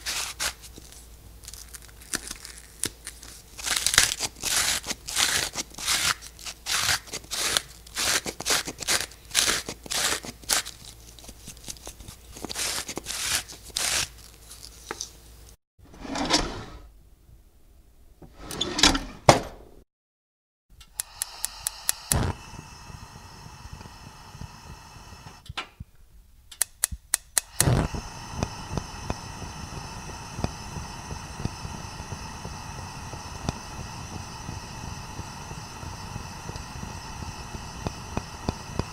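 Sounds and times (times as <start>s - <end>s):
steady hum: 20.9s - 25.5s, 27.5s - 38.9s.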